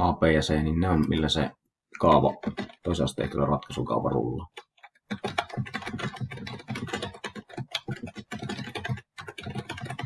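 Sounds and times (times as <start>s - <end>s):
keyboard typing: 2.0s - 3.8s, 4.4s - 10.0s.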